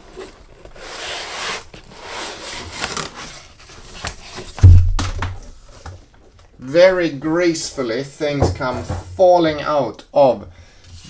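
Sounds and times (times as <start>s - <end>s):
cardboard scraping and rustling: 0.0s - 5.9s
loud deep thump on table: 4.6s - 5.4s.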